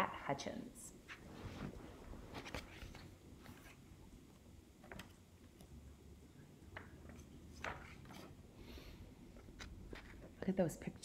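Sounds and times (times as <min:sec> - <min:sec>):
book pages rustling: 0:01.1 - 0:03.9, 0:06.7 - 0:08.4, 0:09.3 - 0:10.4.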